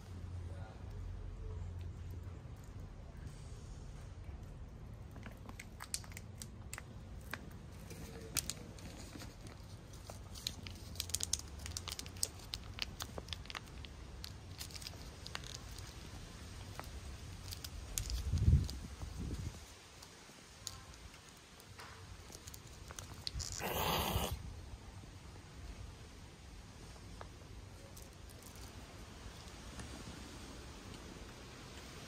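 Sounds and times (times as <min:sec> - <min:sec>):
plastic wrapper crinkling: 0:05.1 - 0:18.9.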